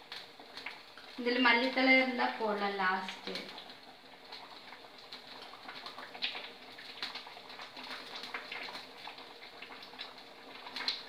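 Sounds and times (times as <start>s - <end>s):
oil crackling in a pan: 0.0s - 11.0s.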